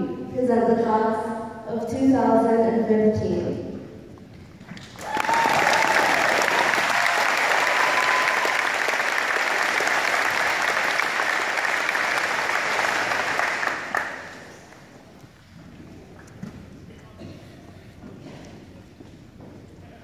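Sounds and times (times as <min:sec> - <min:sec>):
large audience applauding: 0:04.8 - 0:14.9.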